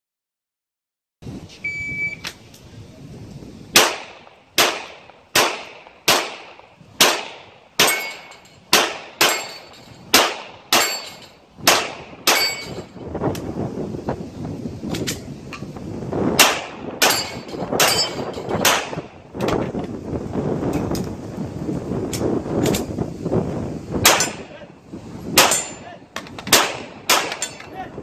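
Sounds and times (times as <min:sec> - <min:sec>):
shot timer beep: 0:01.6 - 0:02.2
gunshots hitting steel targets: 0:03.7 - 0:13.0, 0:16.4 - 0:19.1, 0:24.0 - 0:24.5, 0:25.4 - 0:27.8.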